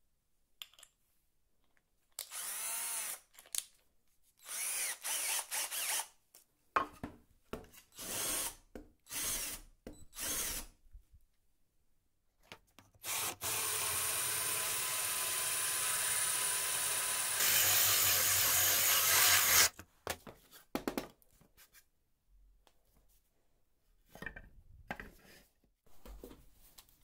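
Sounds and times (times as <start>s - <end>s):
drill hole saw cutting plywood: 2.3s - 3.2s, 4.4s - 6.1s, 8.0s - 9.6s, 10.2s - 10.7s, 13.0s - 19.7s.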